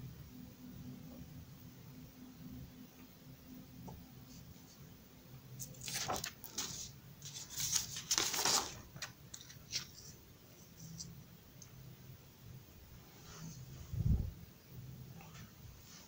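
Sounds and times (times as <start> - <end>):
paper sheets rustling: 5.6 - 11.1.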